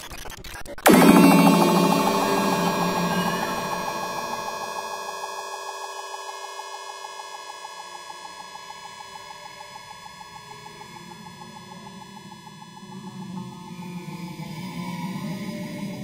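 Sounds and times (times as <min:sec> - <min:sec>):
electronic music: 0:00.8 - 0:07.6.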